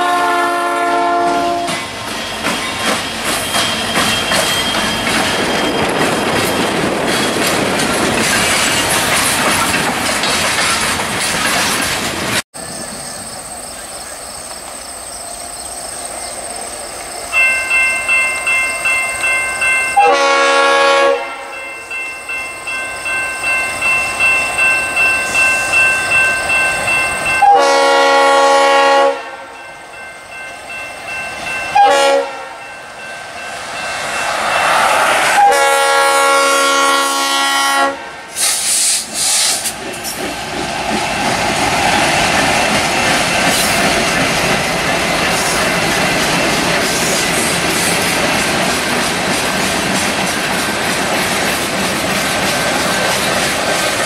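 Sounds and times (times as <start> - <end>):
locomotive air horn: 0.0 - 1.8, 20.0 - 21.6, 27.4 - 29.6, 31.8 - 32.6, 35.2 - 39.5
train rumbling past: 0.0 - 54.0
wheels clacking on rails: 0.9 - 15.1, 29.6 - 37.2, 38.3 - 54.0
pulsing crossing bell: 17.3 - 20.6, 21.2 - 27.8, 29.4 - 35.6.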